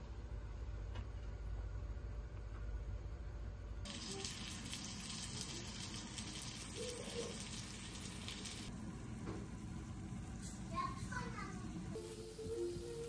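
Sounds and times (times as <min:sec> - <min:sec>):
eggplant frying in oil: 0:03.8 - 0:08.7.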